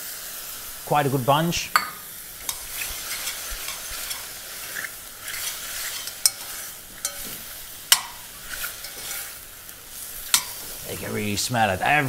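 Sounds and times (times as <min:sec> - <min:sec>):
mushrooms sizzling in saucepan: 0:00.0 - 0:12.0
spoon clicking against pan: 0:07.0 - 0:07.3, 0:07.9 - 0:09.1, 0:10.3 - 0:10.6.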